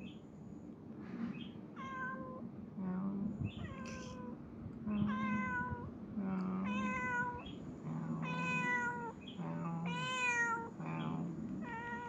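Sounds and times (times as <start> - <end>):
cat meowing: 1.8 - 2.4, 3.5 - 4.3, 5.1 - 5.8, 8.2 - 9.2, 9.9 - 10.7.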